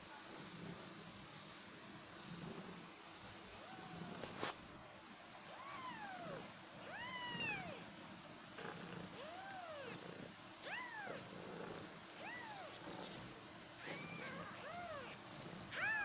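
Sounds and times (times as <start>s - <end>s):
kittens mewing: 5.5s - 7.9s, 9.0s - 11.4s, 12.1s - 16.0s.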